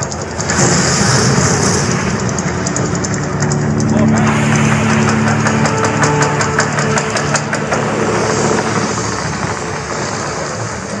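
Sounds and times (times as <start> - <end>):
sharp pops and crackles: 0.0 - 4.2
rumbling roar: 0.0 - 11.0.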